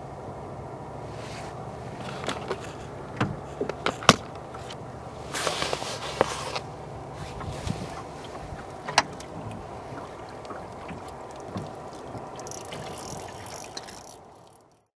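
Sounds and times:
water around a boat: 0:00.0 - 0:14.9
wind: 0:00.0 - 0:14.9
knocks on a boat: 0:08.5 - 0:12.3.

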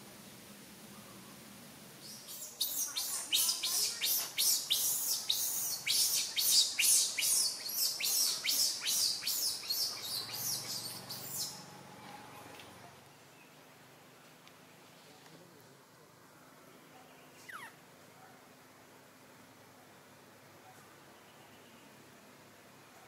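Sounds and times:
bird chirping rapidly: 0:02.0 - 0:11.7, 0:17.3 - 0:17.8.

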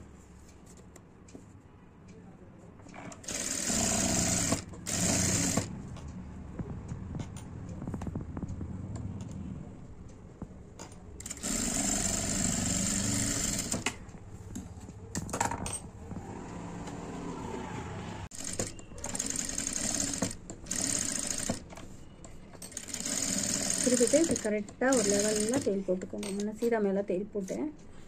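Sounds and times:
sewing machine stitching: 0:03.0 - 0:05.7, 0:11.2 - 0:14.0, 0:18.3 - 0:21.6, 0:22.7 - 0:26.4.

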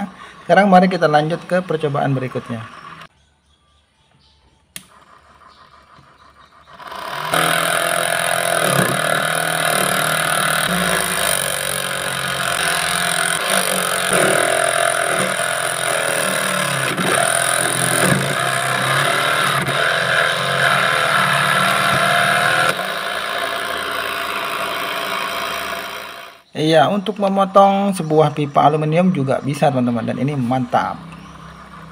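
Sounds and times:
motor whine of cutting machine: 0:00.7 - 0:03.1, 0:04.8 - 0:26.4.

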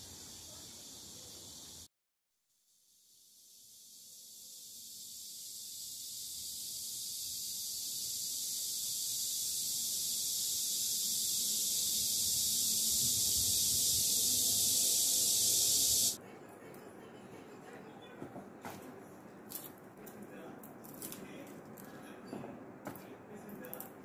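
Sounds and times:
cicadas buzzing: 0:00.0 - 0:01.9, 0:03.0 - 0:16.2.

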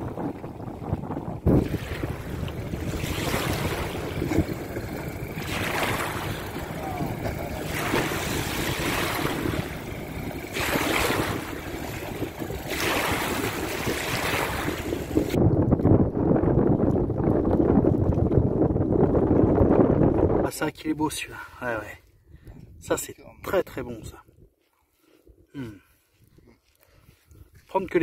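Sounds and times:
wind buffeting microphone: 0:00.0 - 0:20.7, 0:22.2 - 0:23.0, 0:26.2 - 0:28.0
small waves washing ashore: 0:00.3 - 0:15.4.

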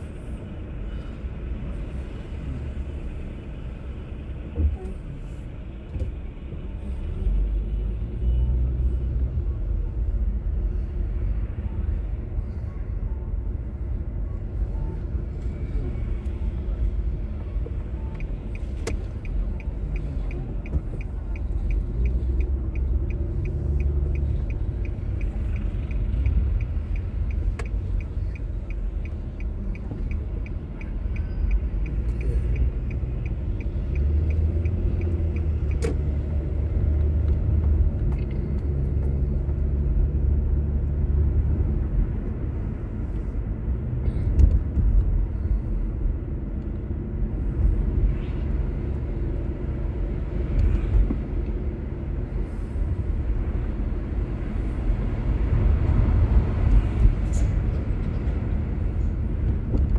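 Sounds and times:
car engine and road rumble: 0:00.0 - 0:59.9
turn-signal indicator ticking: 0:17.1 - 0:36.6.

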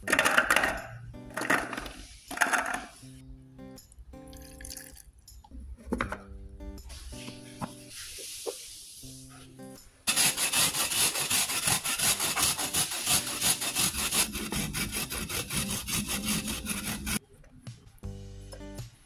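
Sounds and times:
root grated on metal grater: 0:10.1 - 0:17.2.

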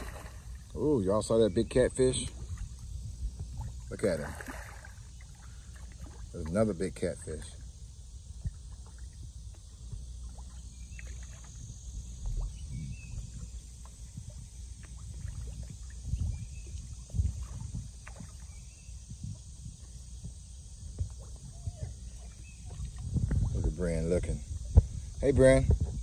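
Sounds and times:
low wind rumble on microphone: 0:00.0 - 0:06.4, 0:07.2 - 0:26.0
small splashes on water: 0:03.5 - 0:06.6, 0:10.2 - 0:11.6.

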